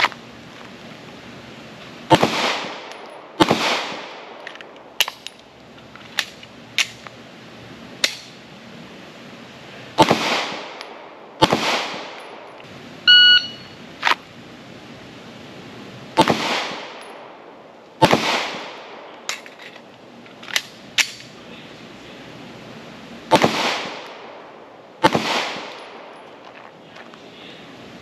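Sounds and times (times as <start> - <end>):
pistol shots with echo: 2.1 - 4.4, 10.0 - 12.4, 16.2 - 17.4, 18.0 - 19.1, 23.3 - 24.4, 25.0 - 26.1
shot timer electronic beep: 13.1 - 13.8.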